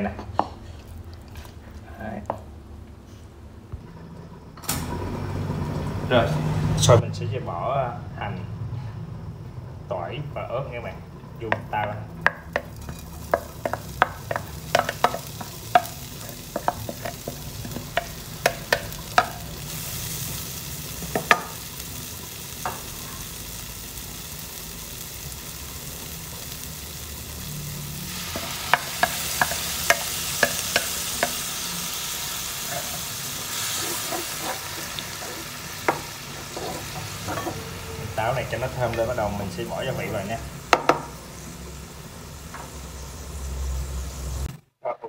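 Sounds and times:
food sizzling in hot oil: 0:11.0 - 0:44.5.

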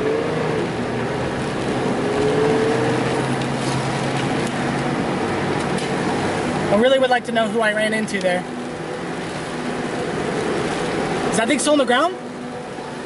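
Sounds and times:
low engine hum: 0:00.0 - 0:13.0
tyre and road noise: 0:00.0 - 0:13.0.

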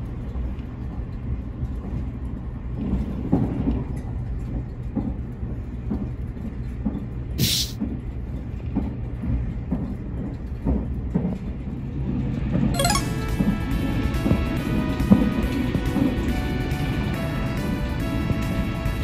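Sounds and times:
train rumble inside passenger car: 0:00.0 - 0:19.0
short sharp hiss: 0:07.4 - 0:07.8.

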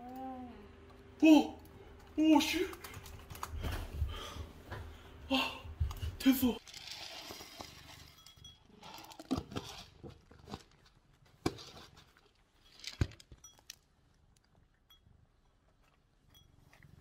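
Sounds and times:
cat crunching food: 0:06.6 - 0:08.1
dry kibble poured into a ceramic bowl: 0:06.6 - 0:08.2.

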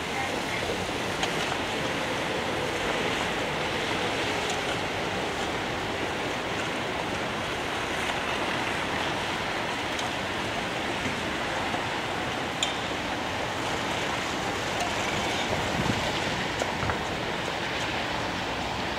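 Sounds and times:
traffic on slushy roads: 0:00.0 - 0:18.9.

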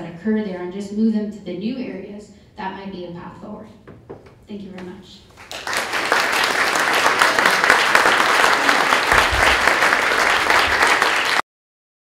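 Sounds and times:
audience applauding: 0:05.4 - 0:11.4.

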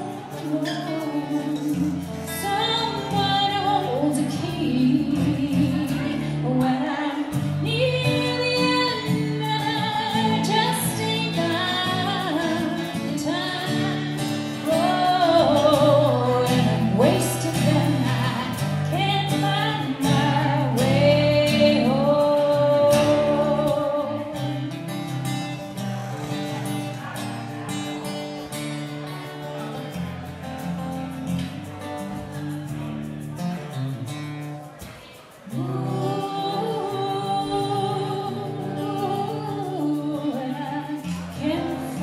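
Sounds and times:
woman singing with vibrato: 0:00.0 - 0:25.0, 0:35.4 - 0:42.0
strummed acoustic guitar: 0:00.0 - 0:42.0.

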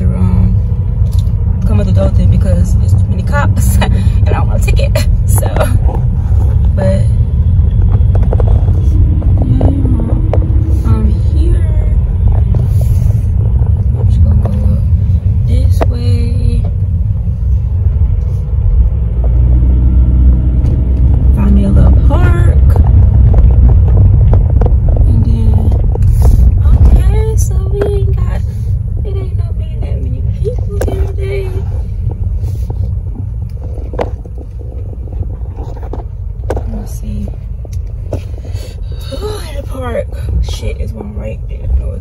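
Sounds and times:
car cabin engine and road rumble: 0:00.0 - 0:42.0.

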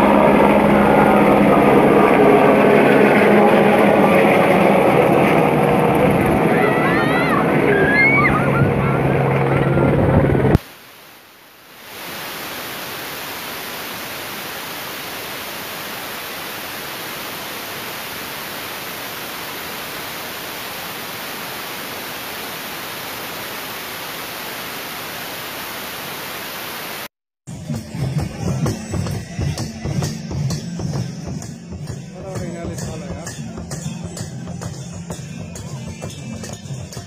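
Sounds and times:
steady static hiss: 0:10.4 - 0:27.1.

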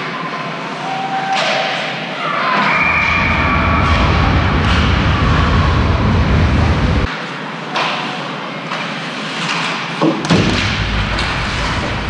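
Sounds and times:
noisy game ambience: 0:02.4 - 0:07.6, 0:10.2 - 0:12.0
low rumble: 0:02.8 - 0:07.1, 0:10.5 - 0:12.0
sharp knocks: 0:10.0 - 0:11.3.

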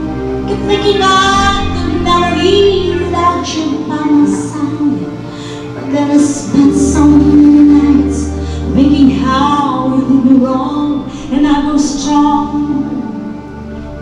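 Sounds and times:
instrumental backing: 0:00.0 - 0:14.0
woman singing with vibrato: 0:00.4 - 0:13.4.

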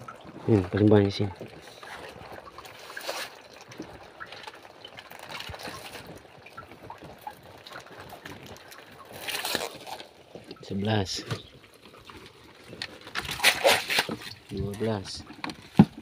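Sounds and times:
lobsters clicking and rustling: 0:00.0 - 0:16.0
water sloshing and dripping: 0:00.0 - 0:16.0.

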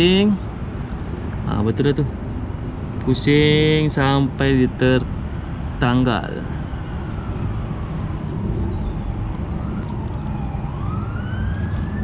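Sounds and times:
low traffic rumble: 0:00.0 - 0:12.0
emergency siren wailing: 0:06.2 - 0:12.0.

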